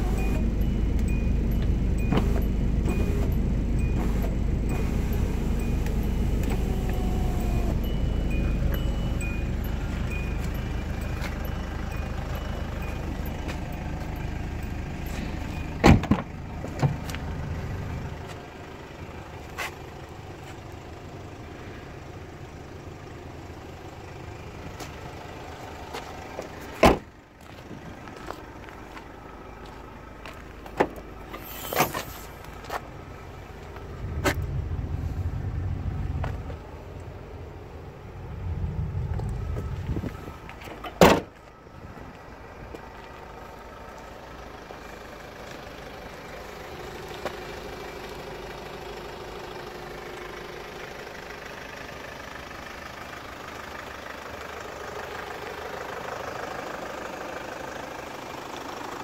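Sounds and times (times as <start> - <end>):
low rumble: 32.2 - 40.7.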